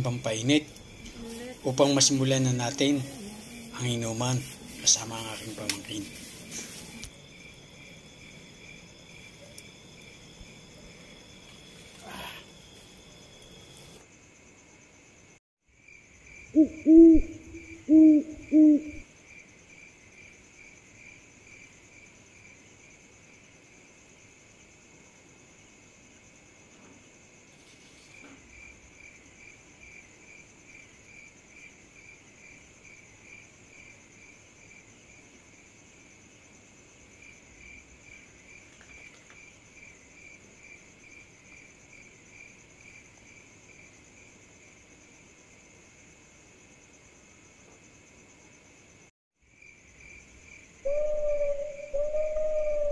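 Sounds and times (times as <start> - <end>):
crickets chirping: 0.0 - 52.9
owl hooting: 16.5 - 19.0, 50.8 - 52.9.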